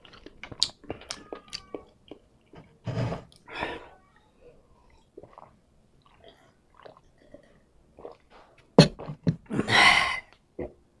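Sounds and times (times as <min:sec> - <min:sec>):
person gulping water: 0:05.0 - 0:10.8.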